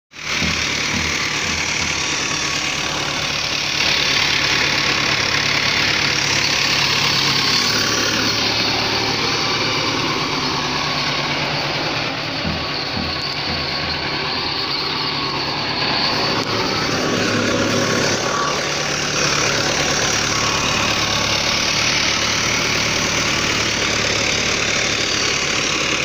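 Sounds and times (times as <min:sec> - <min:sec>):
tractor diesel engine running: 0:00.1 - 0:26.0.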